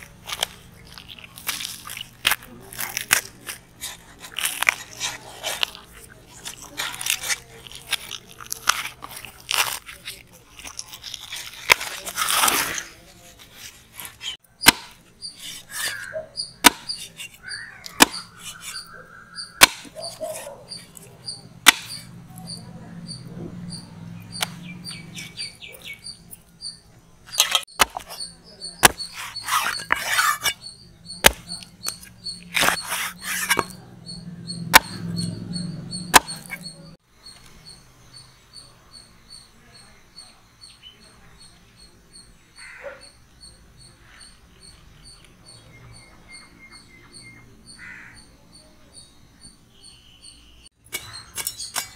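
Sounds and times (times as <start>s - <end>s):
knife chopping on wooden block: 14.6s - 15.0s, 15.7s - 18.8s, 19.6s - 20.5s, 21.6s - 22.0s, 27.3s - 28.2s, 28.8s - 30.6s, 31.2s - 33.8s, 34.7s - 35.3s, 36.1s - 36.7s.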